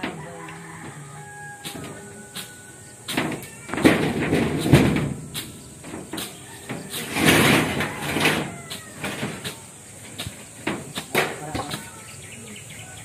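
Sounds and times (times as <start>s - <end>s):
shovel scraping and digging soil: 1.5s - 3.8s, 4.5s - 12.0s
sharp knocks: 3.1s - 12.0s.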